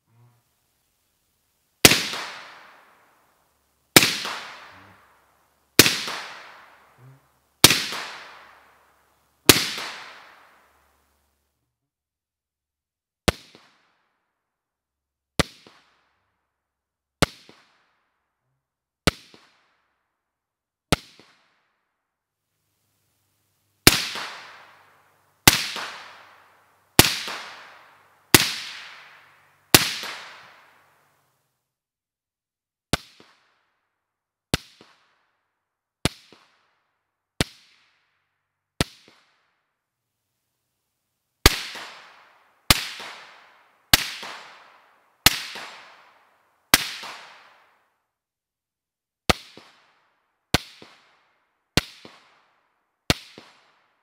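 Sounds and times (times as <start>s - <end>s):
suppressed rifle shots: 1.8s - 3.0s, 4.0s - 5.1s, 5.8s - 7.0s, 7.6s - 8.8s.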